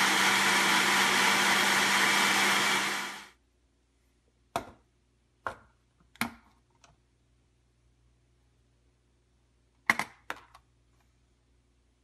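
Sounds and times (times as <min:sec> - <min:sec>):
blender motor winding down: 0:00.0 - 0:03.3.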